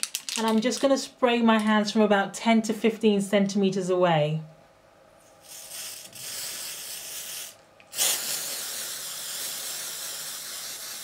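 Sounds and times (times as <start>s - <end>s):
aerosol spray can hissing: 5.4s - 11.0s.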